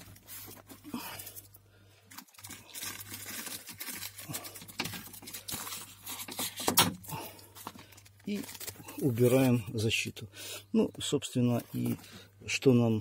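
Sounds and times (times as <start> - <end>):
plastic crinkling: 0.0 - 9.9
tape ripping off plastic: 2.4 - 7.1.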